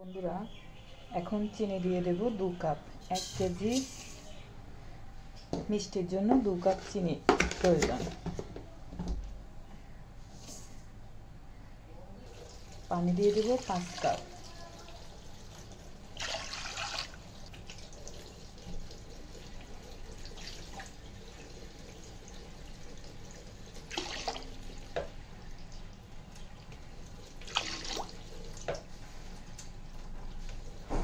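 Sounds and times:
water pouring into metal pan: 12.3 - 24.8.

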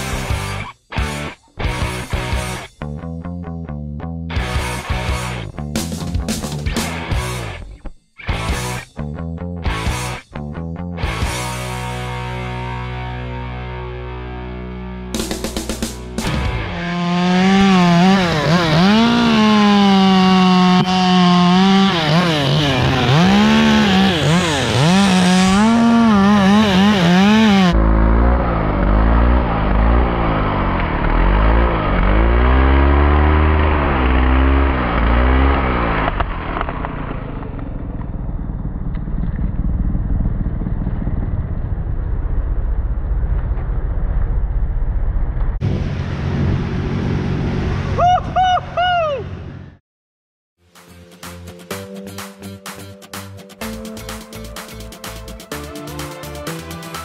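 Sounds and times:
chainsaw revving while cutting: 16.3 - 36.2.

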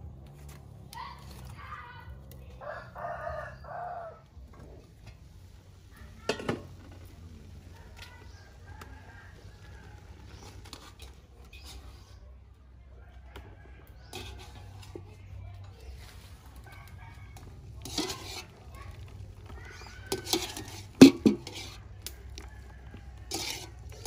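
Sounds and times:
rooster crowing: 2.6 - 4.2, 16.6 - 17.6
metal pot clank: 6.2 - 6.8, 17.8 - 18.6, 20.1 - 21.8.

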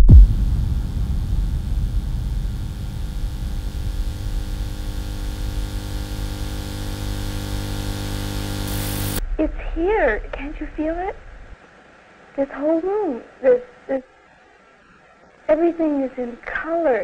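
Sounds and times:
low thump: 0.0 - 5.3, 9.2 - 11.6
electrical hum and buzz: 0.0 - 12.4
static hiss: 0.0 - 17.0.

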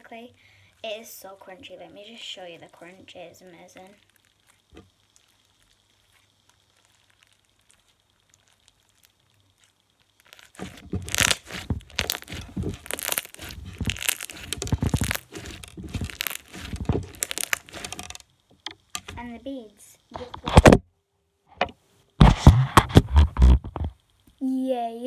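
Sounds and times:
crunchy slime being squeezed: 3.8 - 18.2.

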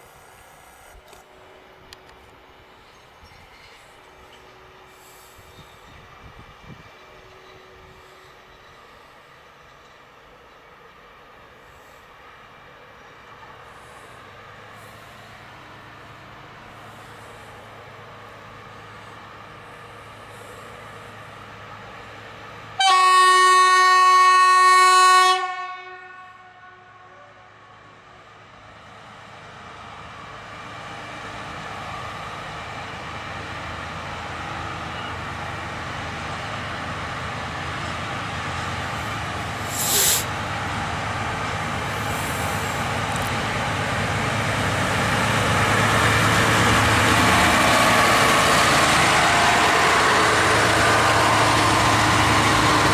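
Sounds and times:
locomotive engine: 0.0 - 22.8, 27.4 - 52.9
locomotive horn blast: 22.8 - 27.5
short high hiss: 39.6 - 40.4.

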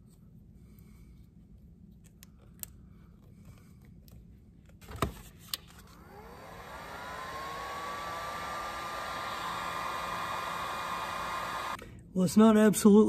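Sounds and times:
heat gun fan whining: 5.6 - 11.8.

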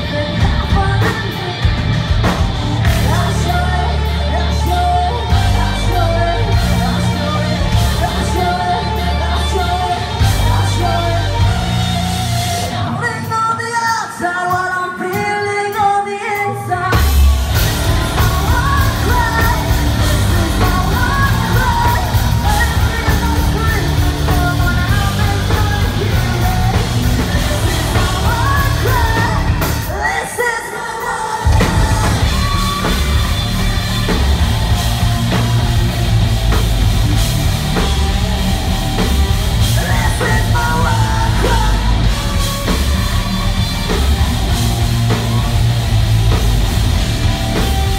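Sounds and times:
woman singing: 0.0 - 35.8, 39.2 - 45.6
rock band playing: 0.0 - 47.9.

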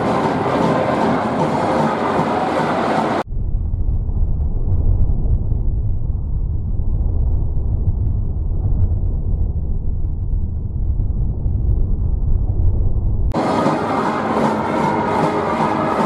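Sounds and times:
stadium crowd din: 13.4 - 16.0.

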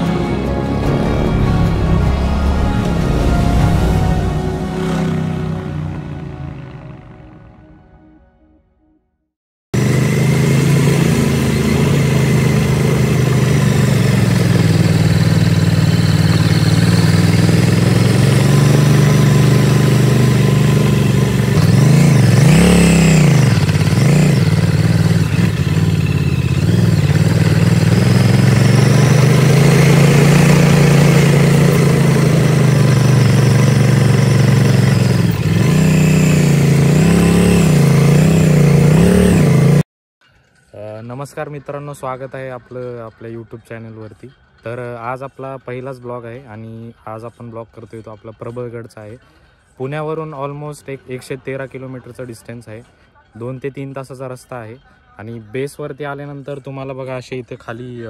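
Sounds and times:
motorcycle engine running: 0.0 - 7.5, 9.8 - 39.8.

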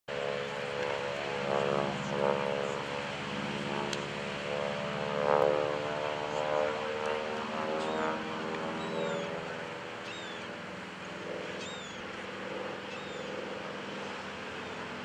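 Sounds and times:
radial engine and propeller droning: 0.0 - 15.0.

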